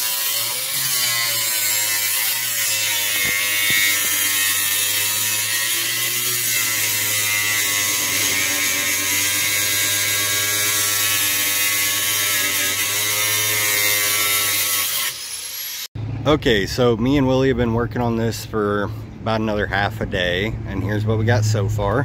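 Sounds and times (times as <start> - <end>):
angle grinder grinding metal: 0.0 - 15.9.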